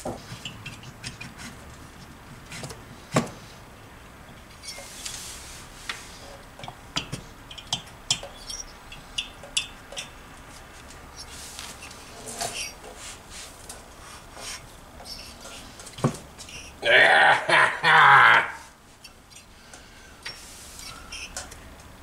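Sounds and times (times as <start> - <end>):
metal scrape: 11.1 - 16.8.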